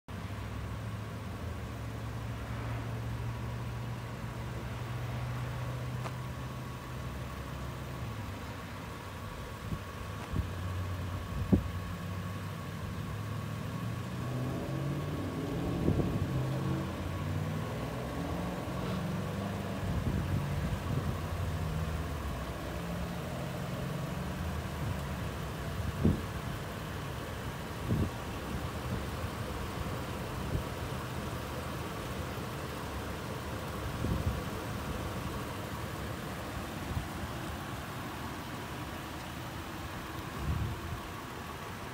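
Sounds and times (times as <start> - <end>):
car engine idling: 0.1 - 41.9.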